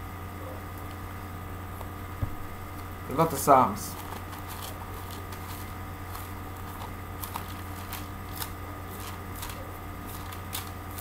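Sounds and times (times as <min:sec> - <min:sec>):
steady low hum: 0:00.0 - 0:11.0
pages rustling: 0:03.6 - 0:11.0
crisp paper flicks: 0:03.9 - 0:11.0.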